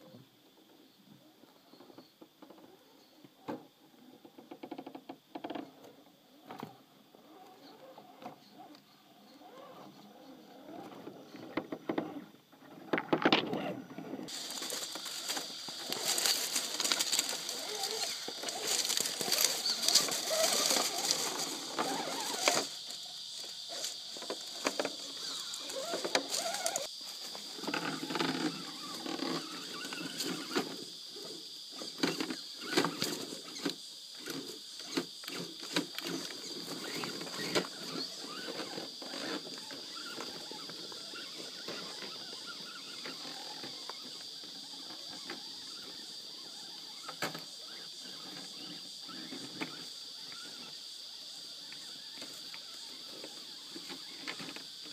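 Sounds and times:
tyres crunching over rocks: 0:14.3 - 0:27.3.

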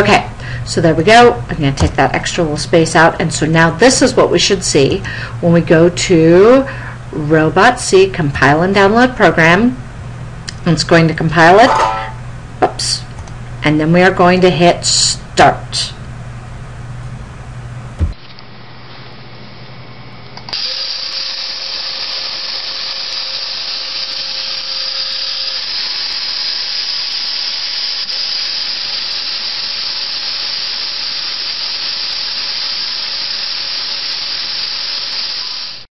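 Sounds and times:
small electric motors whirring: 0:20.5 - 0:35.9.

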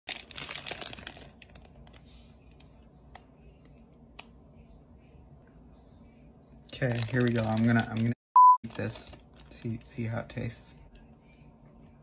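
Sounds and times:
plastic bag crinkling: 0:00.1 - 0:02.0, 0:06.7 - 0:10.2.

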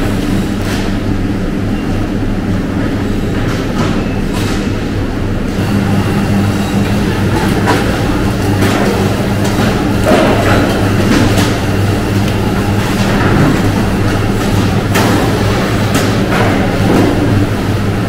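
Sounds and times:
machinery hum: 0:00.0 - 0:18.0.

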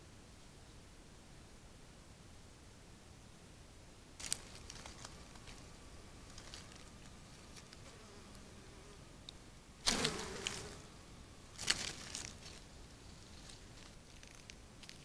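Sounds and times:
footsteps on dry leaves: 0:04.2 - 0:05.7, 0:06.3 - 0:07.7, 0:11.6 - 0:15.0.

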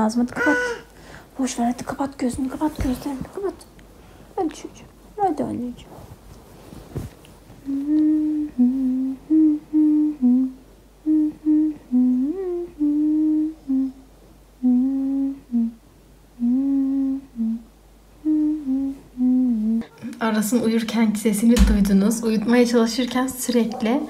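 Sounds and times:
person humming a slow tune: 0:07.6 - 0:15.8, 0:16.4 - 0:19.9.

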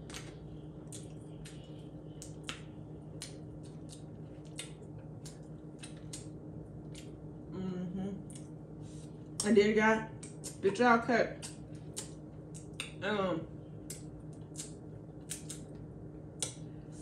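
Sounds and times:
wet eating sounds: 0:00.0 - 0:07.2, 0:13.9 - 0:15.7.

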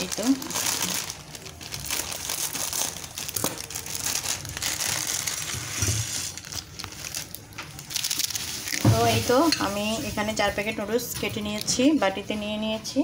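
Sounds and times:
dry noodles crunching: 0:00.0 - 0:09.4
foil wrappers crinkling: 0:00.0 - 0:11.4.

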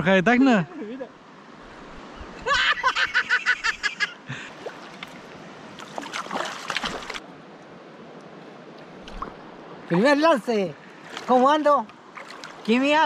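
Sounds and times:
fish splashing in water: 0:05.8 - 0:07.2, 0:12.1 - 0:12.8.

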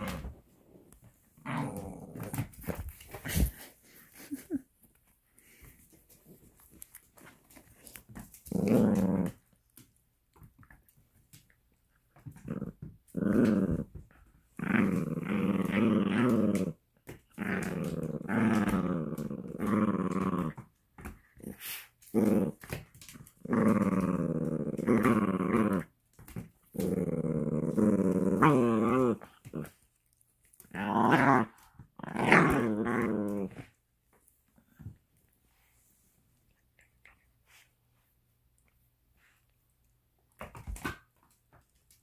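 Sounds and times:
dog play-growling: 0:00.0 - 0:04.6, 0:05.5 - 0:33.8.

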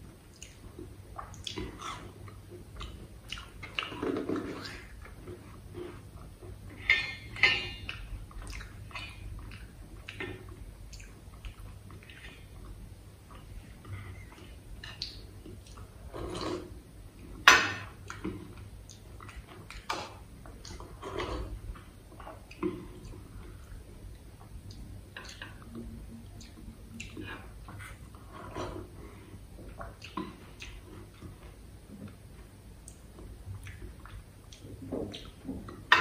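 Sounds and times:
steel bowls clinking and scraping: 0:06.7 - 0:07.9.

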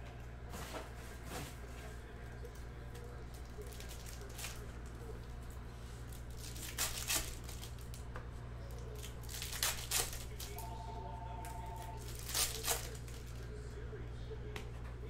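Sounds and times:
low steady hum: 0:00.0 - 0:15.0
wrappers tearing and crinkling: 0:03.3 - 0:05.0, 0:06.0 - 0:08.0, 0:08.7 - 0:10.6, 0:11.7 - 0:13.4.

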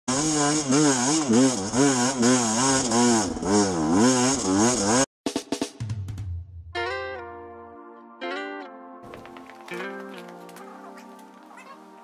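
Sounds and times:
motorcycle engine revving: 0:00.1 - 0:05.1.

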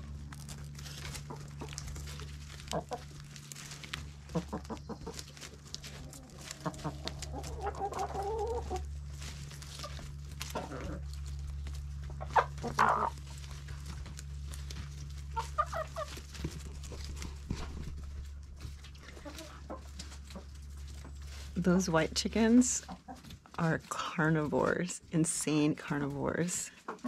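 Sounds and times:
beaks ticking on leaves: 0:00.0 - 0:17.4
low hum: 0:00.0 - 0:26.8
hens clucking: 0:00.0 - 0:27.0.

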